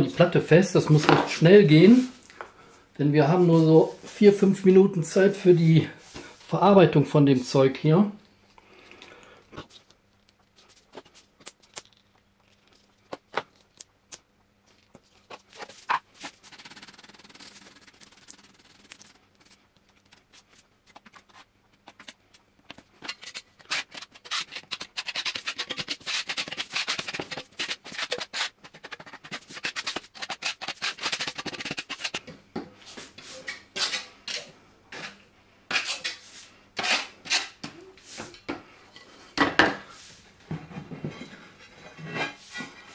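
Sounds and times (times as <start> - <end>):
spatula scraping adhesive on wood: 23.2 - 32.2.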